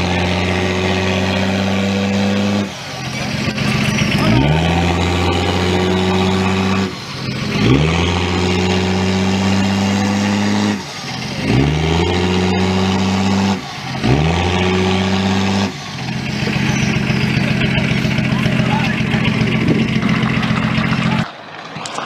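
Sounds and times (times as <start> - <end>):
diesel engine revving: 0.0 - 22.0.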